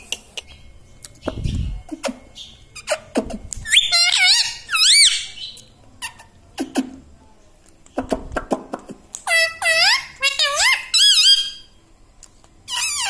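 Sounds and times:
parakeet whistle-like calls: 0:01.3 - 0:05.6, 0:09.3 - 0:11.7.

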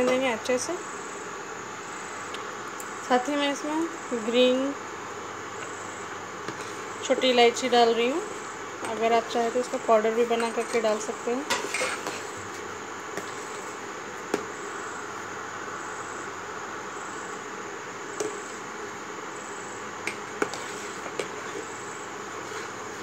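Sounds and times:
steady hiss: 0:00.0 - 0:23.0
spoon stirring in a steel pot: 0:20.1 - 0:23.0.

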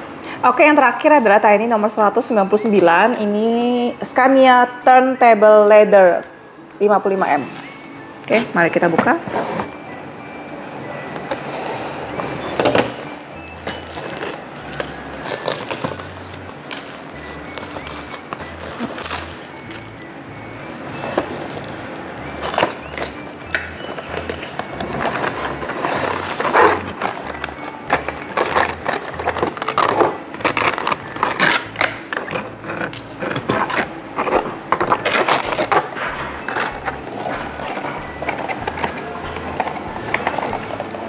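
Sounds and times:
cardboard and plastic packaging crinkling: 0:11.3 - 0:41.0.

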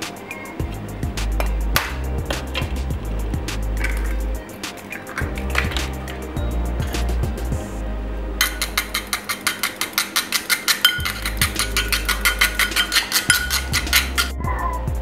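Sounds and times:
utensil beating egg in bowl: 0:08.4 - 0:14.3.

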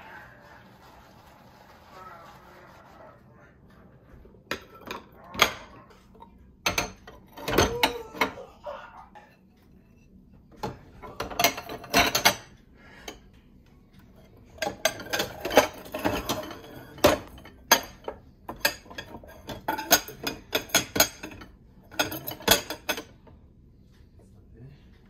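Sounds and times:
ceramic bowls clinking: 0:04.5 - 0:08.4, 0:10.6 - 0:12.6, 0:14.4 - 0:23.2.

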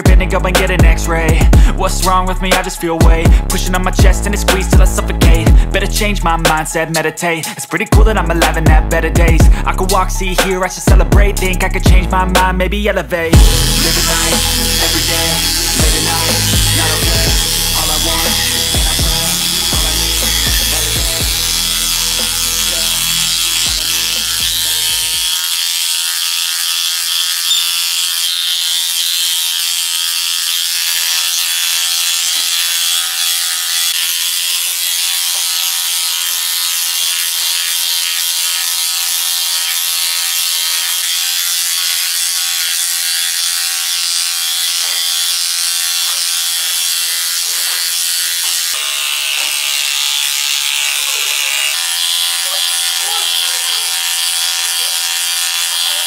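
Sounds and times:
electric dog clippers buzzing: 0:00.0 - 0:56.0
blade rasping through fur: 0:13.2 - 0:56.0.

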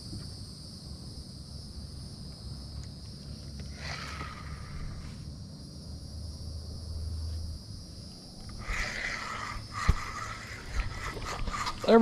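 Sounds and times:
insects buzzing: 0:00.0 - 0:12.0
low steady rumble: 0:00.0 - 0:12.0
rough scratchy noise: 0:08.6 - 0:12.0.

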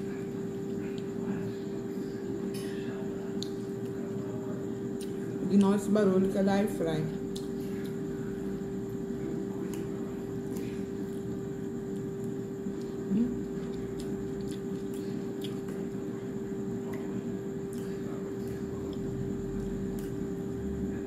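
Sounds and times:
air fryer hum and fan whir: 0:00.0 - 0:21.0
chewing: 0:07.3 - 0:08.2, 0:08.9 - 0:20.4.

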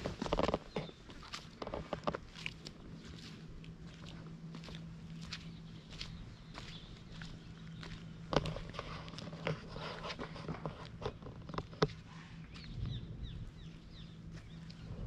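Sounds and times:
footsteps on hard ground: 0:00.0 - 0:15.0
low hum: 0:00.0 - 0:15.0
bird chirps: 0:05.3 - 0:08.2, 0:12.4 - 0:15.0.

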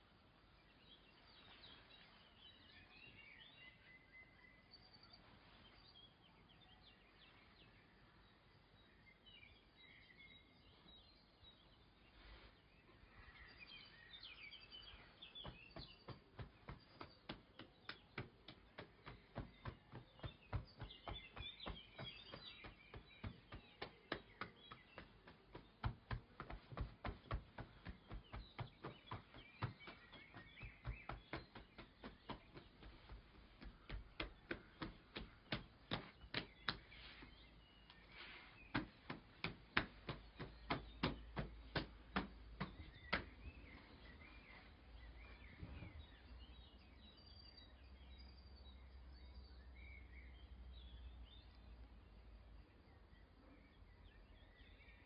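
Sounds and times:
birds chirping: 0:00.0 - 0:55.0
light sharp taps: 0:15.4 - 0:37.3.

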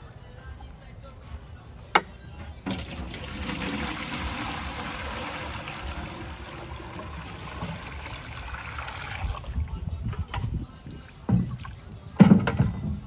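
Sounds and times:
water trickling and splashing: 0:02.7 - 0:12.0.

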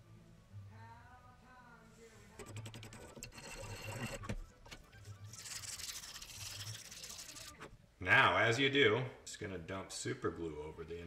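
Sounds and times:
metal file scraping wood: 0:02.9 - 0:04.3.

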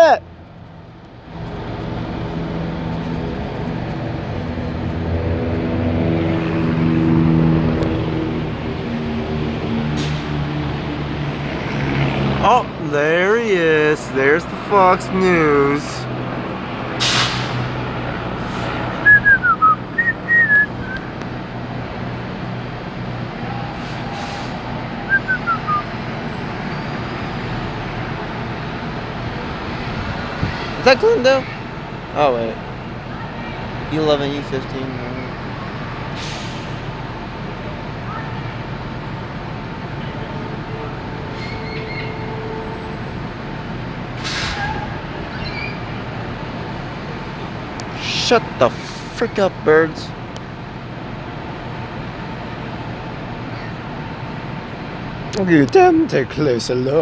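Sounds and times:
street traffic rumble: 0:00.0 - 0:57.0
fire trucks idling: 0:12.4 - 0:57.0
brief hiss: 0:17.0 - 0:17.6
person whistling: 0:19.0 - 0:21.0, 0:25.1 - 0:25.9.

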